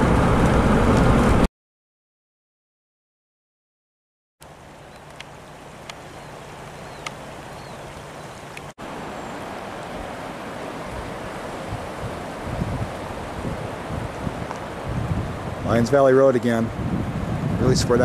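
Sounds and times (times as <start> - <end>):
floodwater rushing: 4.4 - 18.0
wind buffeting microphone: 9.4 - 18.0.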